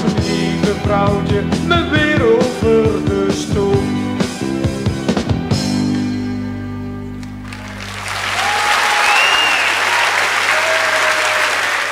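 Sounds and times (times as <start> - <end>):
rock band chord ringing: 4.1 - 9.0
audience applause: 7.4 - 11.9
whistles from audience: 7.9 - 11.7.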